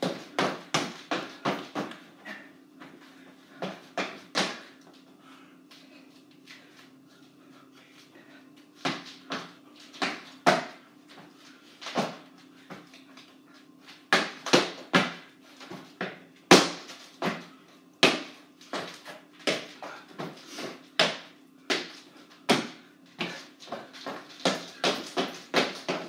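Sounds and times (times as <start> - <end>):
feet stomping on wooden floor: 0.0 - 2.0, 21.0 - 26.0
low steady hum: 0.0 - 26.0.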